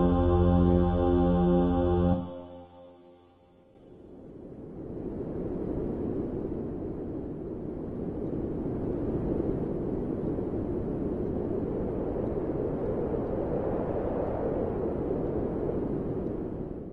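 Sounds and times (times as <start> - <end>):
steady low rumbling: 0.0 - 2.8.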